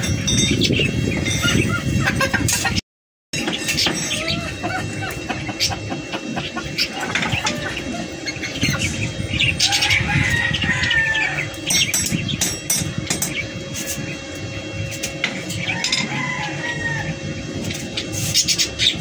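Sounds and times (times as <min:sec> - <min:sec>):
steady hum: 0:03.4 - 0:19.0
chicken calling: 0:03.8 - 0:11.6, 0:15.6 - 0:17.5.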